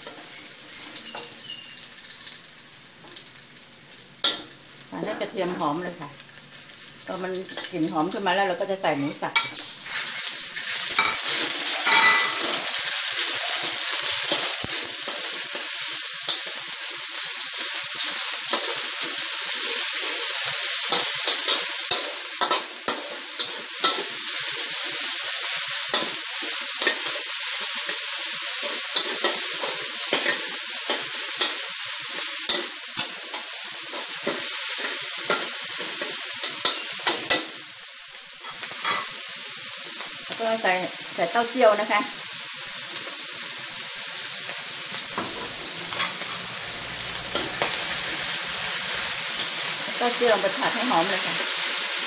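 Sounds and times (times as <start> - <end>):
meat sizzling in hot oil: 0.0 - 52.0
metal spatula scraping and tapping: 4.2 - 4.5, 11.0 - 12.7, 18.0 - 24.7, 25.9 - 31.6, 32.5 - 37.6, 38.4 - 39.1, 45.2 - 46.5.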